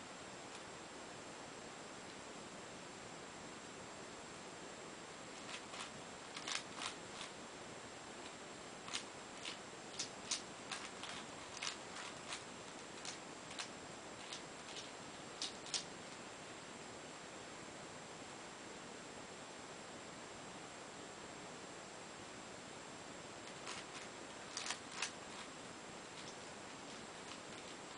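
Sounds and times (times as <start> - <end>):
faint hiss: 0.0 - 27.9
plastic puzzle clicking: 5.4 - 7.3, 8.9 - 12.4, 13.0 - 15.9, 23.5 - 25.5.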